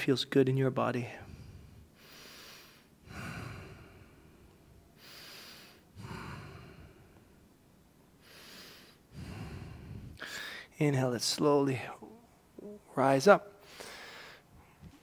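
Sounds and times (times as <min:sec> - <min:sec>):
man breathing slowly: 0:01.1 - 0:10.8, 0:13.6 - 0:15.0.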